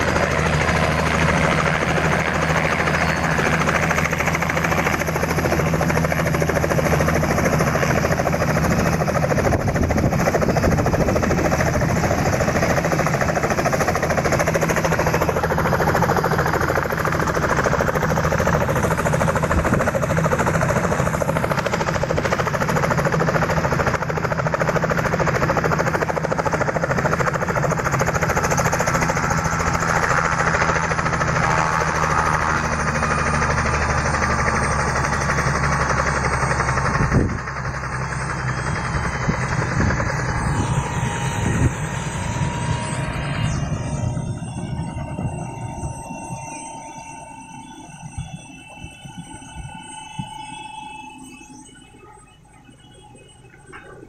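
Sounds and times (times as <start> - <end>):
helicopter rotor beating: 0.0 - 54.0
turbine engine running: 0.0 - 54.0.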